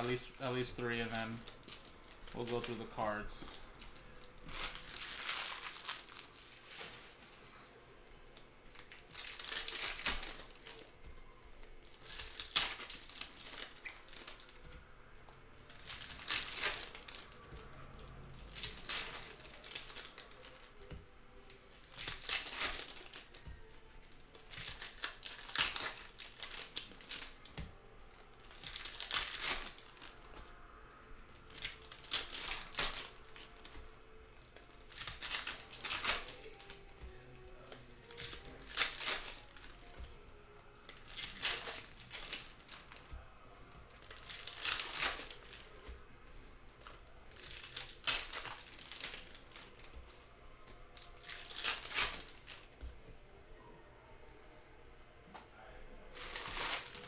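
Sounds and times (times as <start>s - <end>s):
foil packs tearing open: 15.7s - 17.3s, 21.8s - 23.5s, 24.3s - 27.4s, 28.4s - 30.2s, 31.4s - 33.8s, 34.4s - 36.9s, 37.6s - 40.1s, 40.8s - 43.0s, 44.0s - 45.8s, 46.9s - 49.9s, 51.0s - 52.6s, 56.2s - 57.0s.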